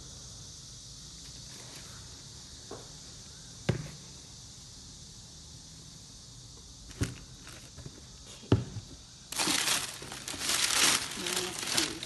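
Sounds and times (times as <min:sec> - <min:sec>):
steady hiss: 0:00.0 - 0:12.0
sharp knocks on cardboard box: 0:03.7 - 0:04.0.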